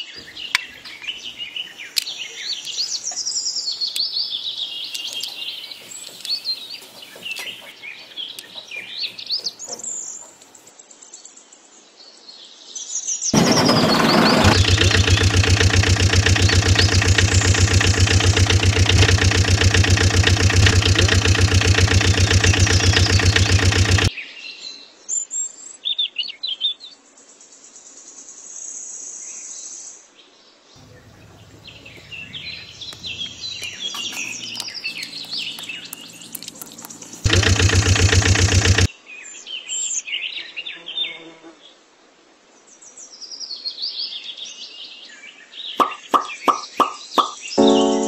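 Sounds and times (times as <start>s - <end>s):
birds chirping: 0.0s - 10.7s, 13.4s - 24.1s, 30.8s - 38.9s, 45.8s - 48.0s
engine running: 4.9s - 10.5s, 13.4s - 24.1s, 30.8s - 38.9s, 47.6s - 48.0s
steady high tone: 47.6s - 48.0s.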